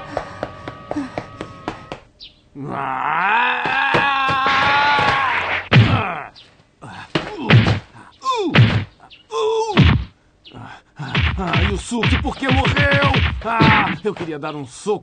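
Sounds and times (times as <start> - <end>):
cartoon punches and kicks: 3.8 - 6.1, 7.2 - 7.9, 8.5 - 8.9, 9.7 - 10.1, 11.1 - 14.1
person yelling: 12.6 - 14.0.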